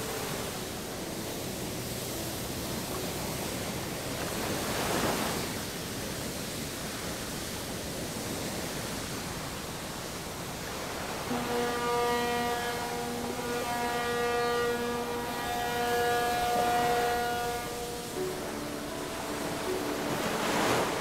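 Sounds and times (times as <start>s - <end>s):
rushing sea and wind: 0.0s - 21.0s
horn sounding: 11.2s - 21.0s.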